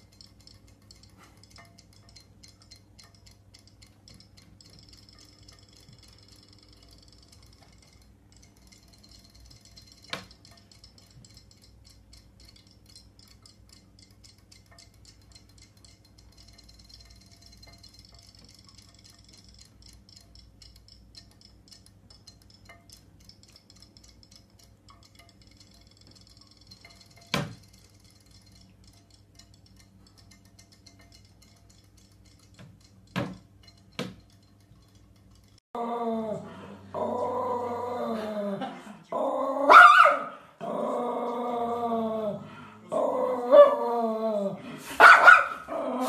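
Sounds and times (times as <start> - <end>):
toy fish ticking: 0.0 - 35.7, 42.9 - 46.0
puppy growling and barking: 35.8 - 46.0.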